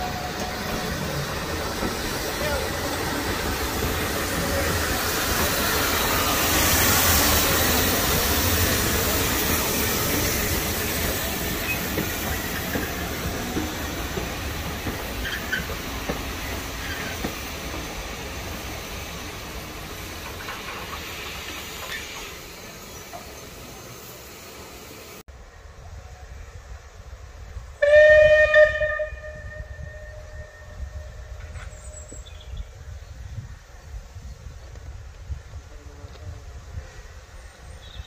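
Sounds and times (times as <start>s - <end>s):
steam hissing: 0.0s - 25.3s
train coaches rolling on rails: 0.0s - 33.0s.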